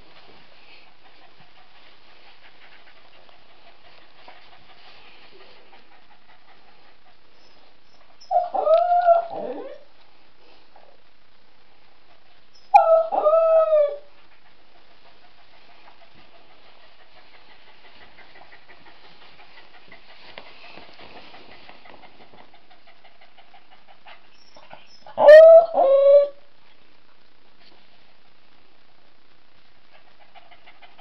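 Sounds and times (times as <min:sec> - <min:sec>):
dog whining: 0:07.4 - 0:09.9, 0:12.6 - 0:14.1, 0:24.3 - 0:26.4.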